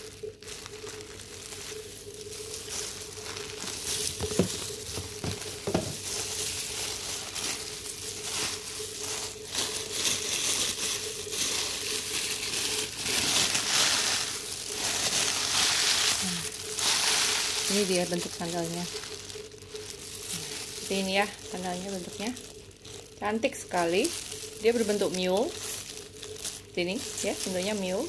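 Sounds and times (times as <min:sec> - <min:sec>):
tissue paper rustling: 0:00.0 - 0:28.0
knocks on cardboard box: 0:04.2 - 0:06.0.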